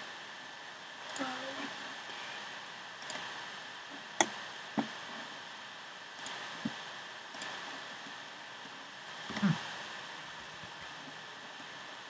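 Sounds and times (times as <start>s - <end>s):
steady hiss: 0.0s - 12.0s
computer clicks: 3.0s - 3.3s, 6.2s - 6.4s, 7.3s - 7.6s.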